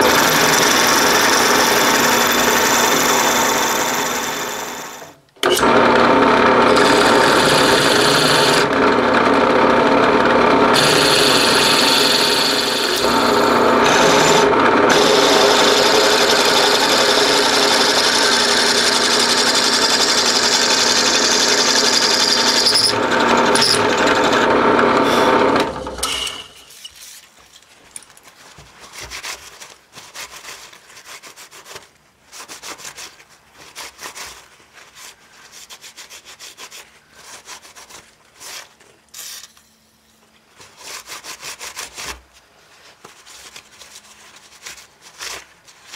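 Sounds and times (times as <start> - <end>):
drill boring cast iron: 0.0 - 26.7.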